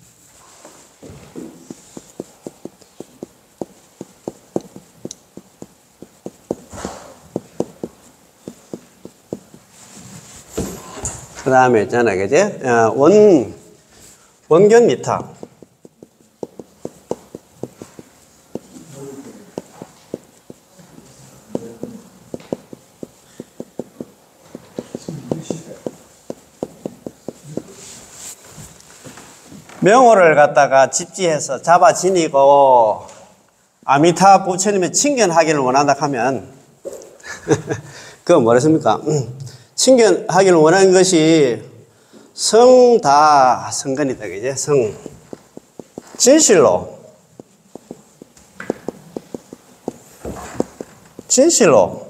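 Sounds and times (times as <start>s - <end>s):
marker pen tapping on whiteboard: 1.0s - 9.7s, 14.6s - 27.9s, 44.0s - 51.6s.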